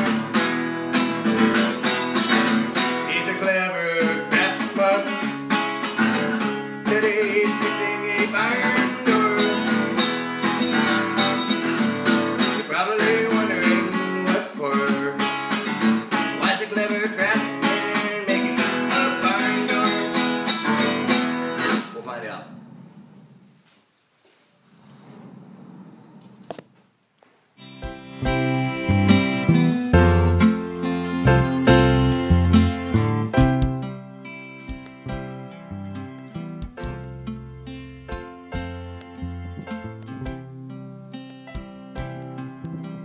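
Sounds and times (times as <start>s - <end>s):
acoustic guitar strumming: 0.0s - 22.0s, 27.6s - 43.0s
man singing: 3.1s - 5.2s, 6.8s - 10.0s, 12.6s - 15.4s, 16.4s - 20.5s.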